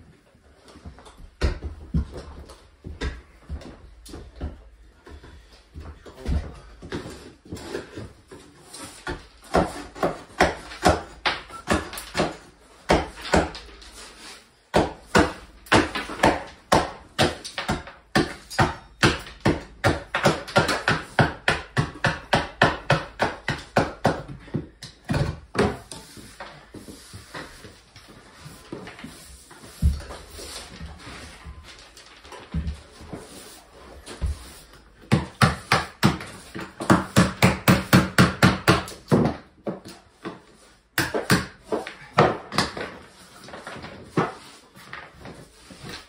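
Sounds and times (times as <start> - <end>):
hammering on wood: 14.7 - 25.9, 35.0 - 40.0, 41.0 - 42.8.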